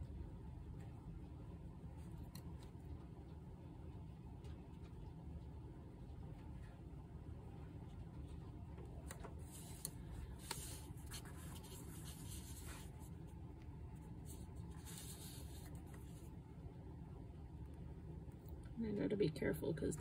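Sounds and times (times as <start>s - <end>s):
light scratching and rubbing: 9.2s - 13.4s, 14.0s - 16.4s.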